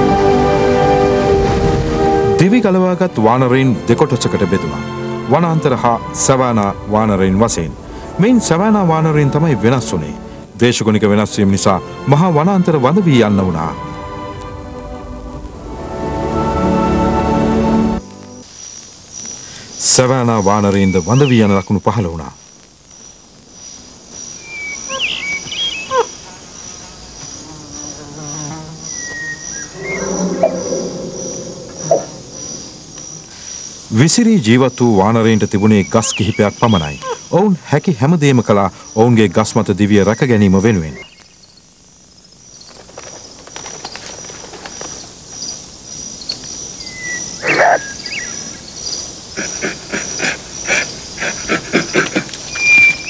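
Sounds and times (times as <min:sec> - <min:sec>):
insects chirping: 0:01.9 - 0:53.0
gliding whistling calls: 0:18.6 - 0:21.8, 0:23.7 - 0:26.2, 0:28.8 - 0:37.4, 0:43.8 - 0:53.0.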